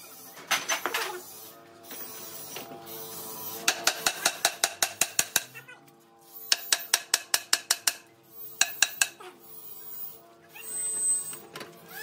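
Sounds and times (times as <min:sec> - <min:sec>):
metal-on-metal taps: 0:03.7 - 0:05.5, 0:06.5 - 0:09.2.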